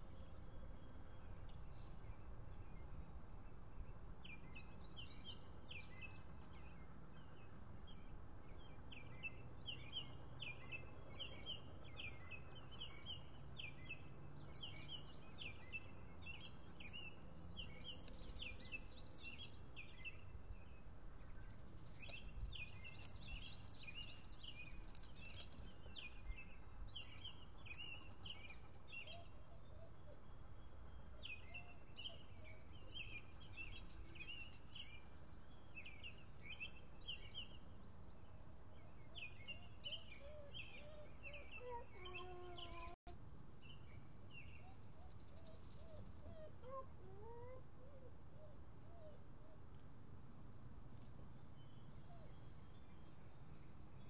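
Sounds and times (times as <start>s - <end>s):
birds chirping: 0.0s - 43.0s.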